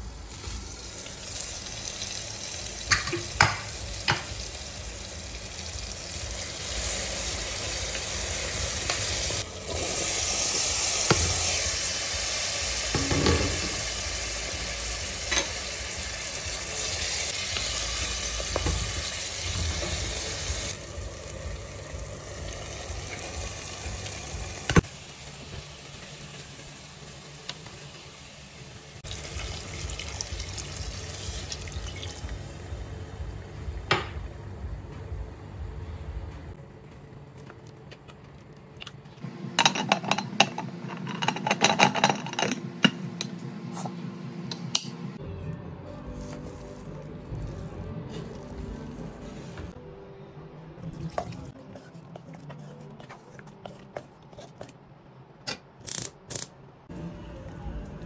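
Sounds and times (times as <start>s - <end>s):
sauce sizzling in pressure cooker: 0.0s - 32.8s
spoon stirring: 50.8s - 54.8s.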